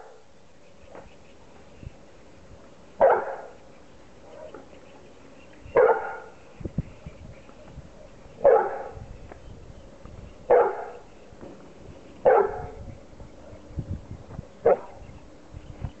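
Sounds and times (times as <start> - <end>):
dog barking: 3.0 - 3.6, 5.8 - 6.3, 8.4 - 9.0, 10.5 - 11.0, 12.2 - 12.8, 14.6 - 15.0.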